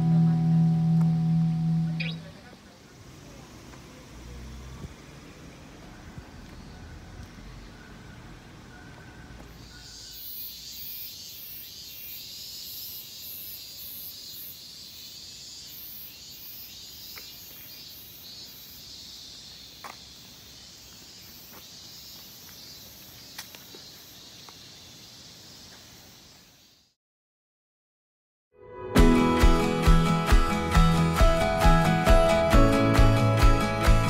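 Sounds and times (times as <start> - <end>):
cicadas singing: 0.0 - 27.0.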